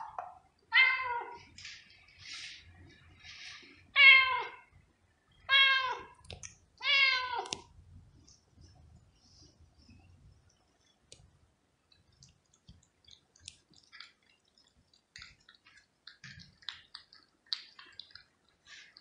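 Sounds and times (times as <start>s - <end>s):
cat chewing wet food: 10.5s - 19.0s.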